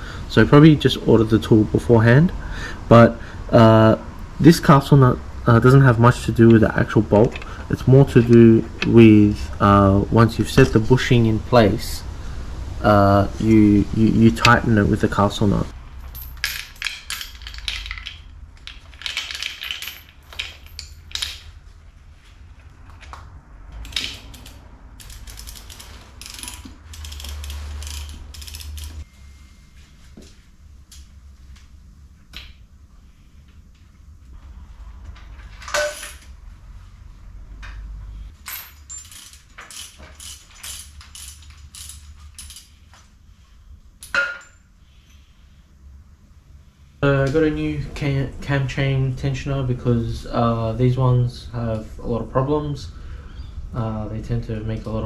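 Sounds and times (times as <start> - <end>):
regular ratchet clicks: 16.0 - 21.5, 23.8 - 29.1, 38.4 - 42.9.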